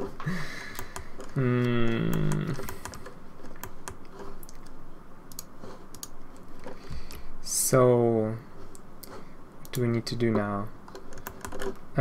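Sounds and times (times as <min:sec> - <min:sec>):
man humming: 0:01.3 - 0:02.8
keyboard keys clicking: 0:05.3 - 0:06.2.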